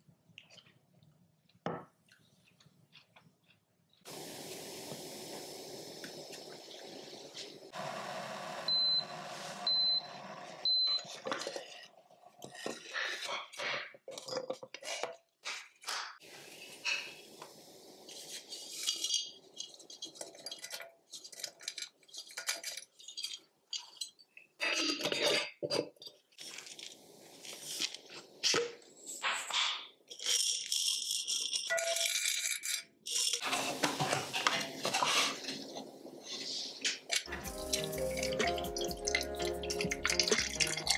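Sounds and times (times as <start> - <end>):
steady hiss: 4.1 - 10.5, 16.2 - 20.1, 26.4 - 29.6, 33.4 - 40.7
kettle beeping: 7.7 - 11.5.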